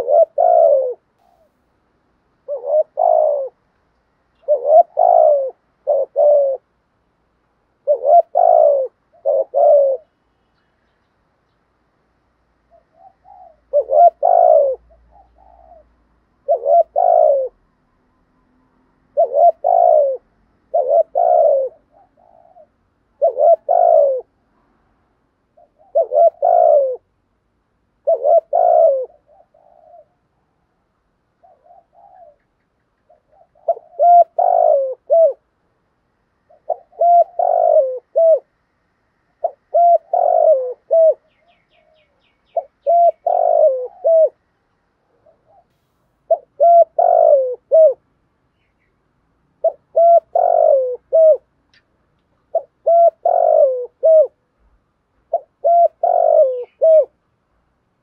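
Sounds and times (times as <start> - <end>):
dove cooing: 0.0 - 1.7, 2.3 - 3.7, 4.4 - 6.8, 7.7 - 10.3, 12.6 - 17.8, 19.0 - 24.4, 25.5 - 27.2, 27.9 - 30.7, 31.3 - 35.6, 36.4 - 38.6, 39.3 - 48.1, 49.5 - 51.6, 52.4 - 57.2.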